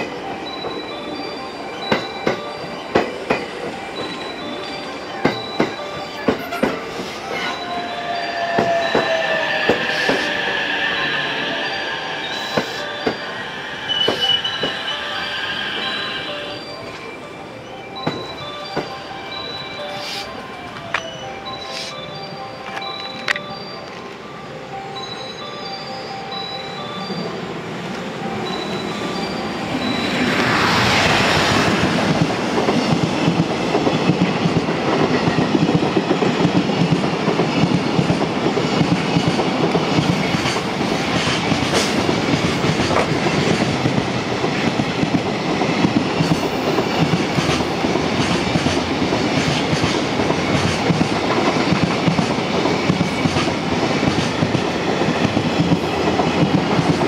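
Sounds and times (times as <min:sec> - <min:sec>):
freight train passing at speed: 0:00.0 - 0:57.0
wheels clickety-clack over rail joints: 0:01.7 - 0:07.5, 0:29.9 - 0:57.0.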